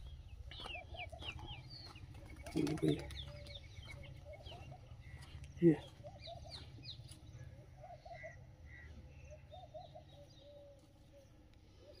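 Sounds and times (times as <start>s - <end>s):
faint bird chirps: 0.0s - 12.0s.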